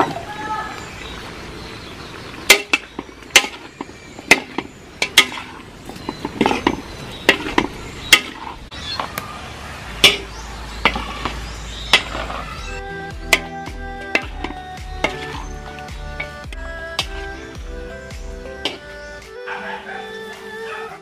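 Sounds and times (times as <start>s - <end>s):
spatula scraping metal wok: 2.5s - 8.7s.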